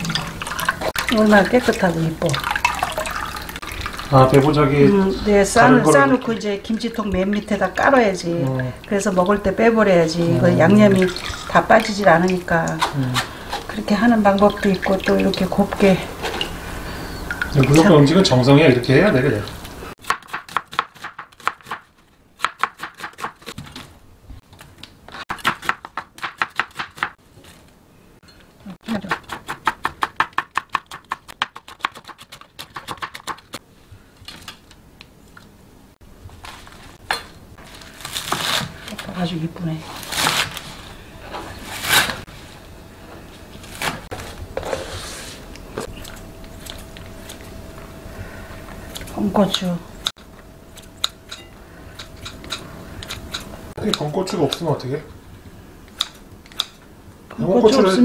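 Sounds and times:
knife chopping onion on board: 20.0 - 23.5, 25.3 - 27.2, 29.0 - 33.5
faint steady hum: 32.3 - 58.0
kitchen scissors snipping: 50.8 - 54.7.

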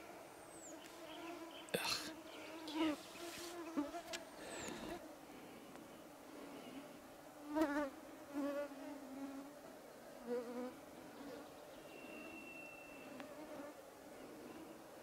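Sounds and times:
insects buzzing: 0.4 - 9.5
thin high whistle: 11.9 - 13.2.

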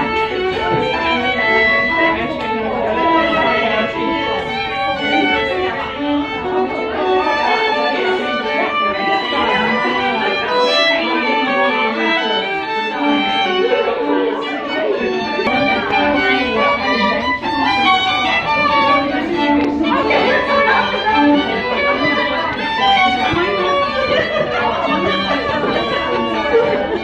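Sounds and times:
murmur of voices: 0.0 - 27.0
violins playing a melody: 0.0 - 27.0.

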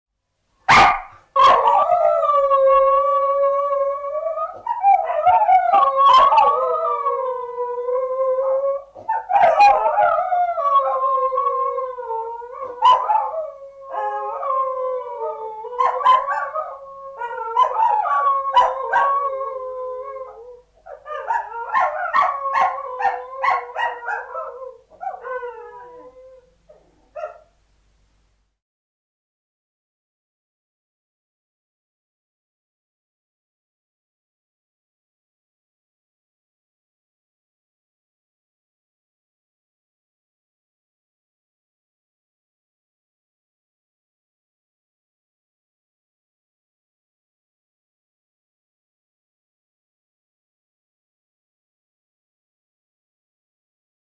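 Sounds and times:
puppies howling: 0.8 - 26.4.

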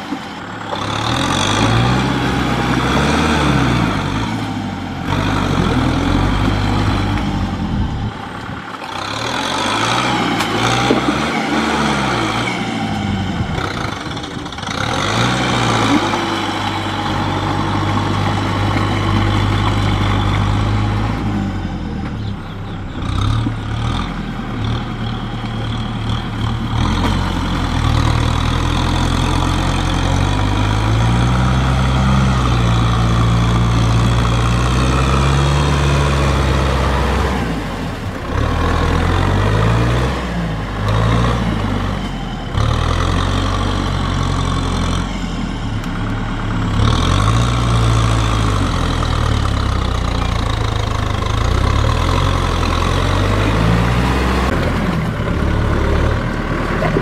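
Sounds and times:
tractor diesel engine under load: 0.0 - 57.0.

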